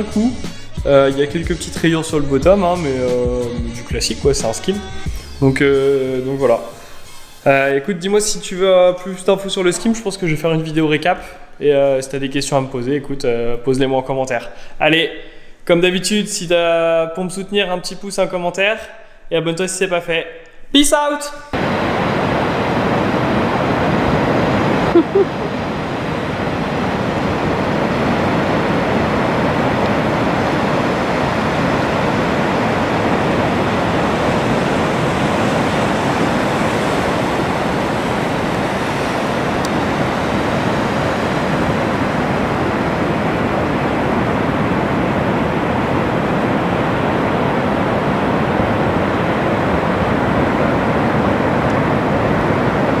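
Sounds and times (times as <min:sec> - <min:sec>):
waves breaking on beach: 0:21.6 - 0:53.0.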